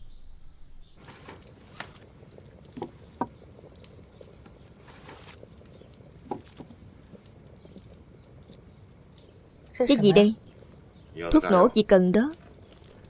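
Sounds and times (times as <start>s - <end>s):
faint rustling: 1.0s - 11.3s.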